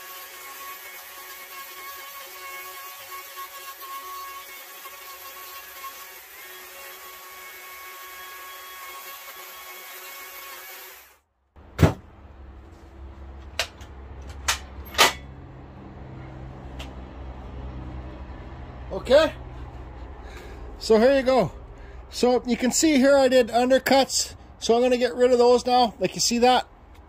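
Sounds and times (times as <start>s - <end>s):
power carving tool whining: 0.0s - 11.2s
sharp knocks: 11.7s - 12.1s.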